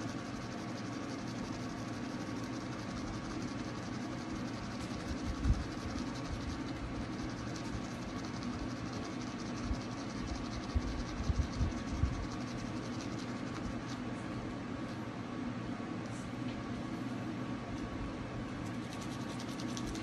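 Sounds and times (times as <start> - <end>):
electric toothbrush buzzing: 0.0 - 14.0, 18.7 - 20.0.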